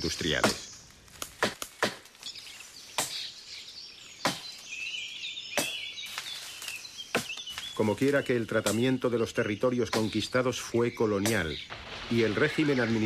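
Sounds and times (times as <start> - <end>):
birds chirping: 0.0 - 13.0
machetes chopping vegetation: 0.2 - 2.2, 2.9 - 3.3, 4.2 - 4.6, 5.5 - 7.7, 9.9 - 10.2.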